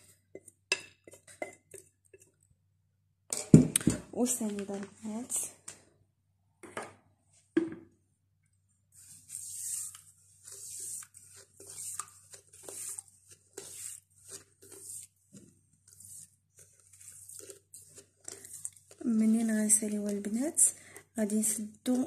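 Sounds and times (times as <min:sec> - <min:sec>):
sugar pouring hissing: 0:09.0 - 0:15.1.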